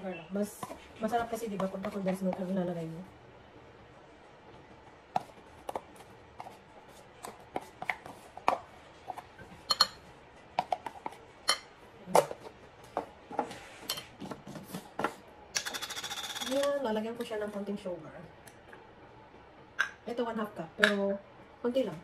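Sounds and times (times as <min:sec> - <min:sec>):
spoon clinking on ceramic bowl: 0:09.7 - 0:10.0.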